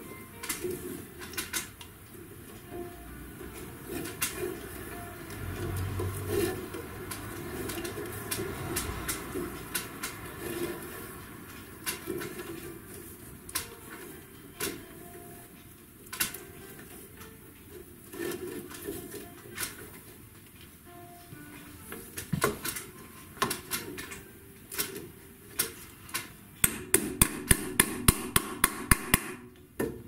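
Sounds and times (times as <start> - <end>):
sharp knocks and clicks: 26.6 - 30.0.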